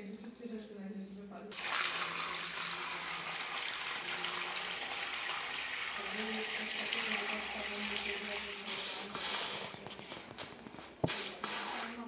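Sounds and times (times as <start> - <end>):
water pouring onto soaked rug: 1.5 - 10.5.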